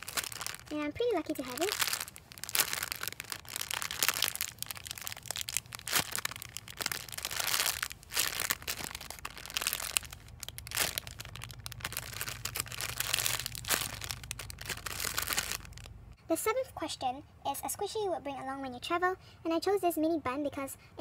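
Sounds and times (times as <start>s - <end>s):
plastic bag crinkling: 0.0s - 15.9s.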